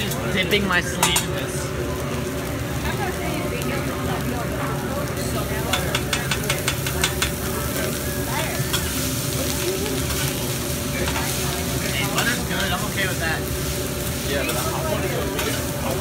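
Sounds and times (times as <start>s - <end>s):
spatula edges rapping griddle: 0.0s - 1.4s, 5.1s - 16.0s
rice and egg sizzling on griddle: 0.0s - 16.0s
metal spatulas scraping griddle: 15.2s - 15.8s.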